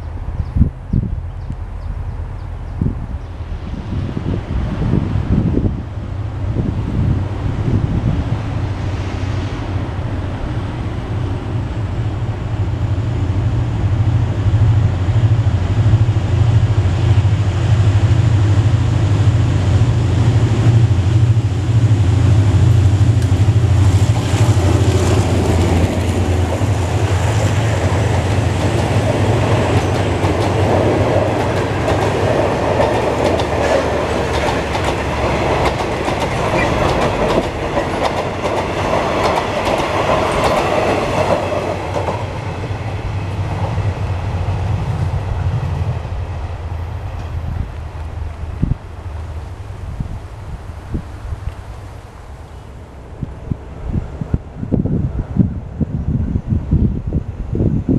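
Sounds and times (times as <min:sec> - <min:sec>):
diesel locomotive engine drone: 0:00.0 - 0:57.9
train wheels clicking over rail joints: 0:14.5 - 0:45.8.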